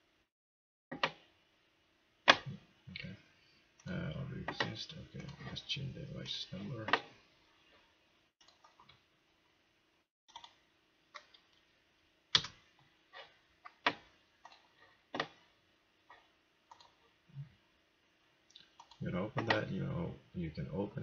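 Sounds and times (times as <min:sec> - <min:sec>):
mouse clicks and keystrokes: 0:00.9 - 0:01.2, 0:08.4 - 0:09.0, 0:10.3 - 0:10.6, 0:12.3 - 0:12.6, 0:16.1 - 0:17.0, 0:18.6 - 0:19.6
faint steady hum: 0:01.0 - 0:21.0.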